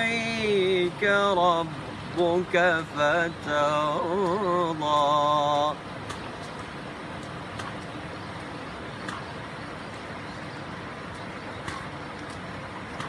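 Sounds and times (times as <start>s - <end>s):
outdoor background noise: 0.0s - 13.0s
faint clicks: 3.6s - 5.2s, 6.0s - 10.1s, 11.1s - 13.0s.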